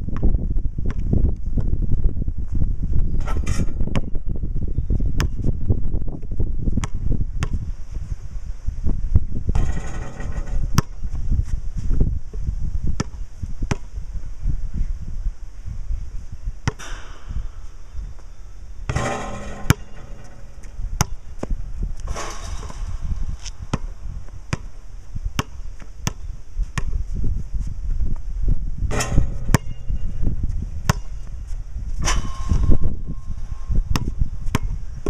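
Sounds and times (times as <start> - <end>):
wind rumble on microphone: 0.0 - 35.0
basketball bouncing on concrete: 5.2 - 5.4, 9.5 - 11.1, 12.9 - 13.9, 16.6 - 24.8, 25.4 - 27.0, 28.9 - 34.9.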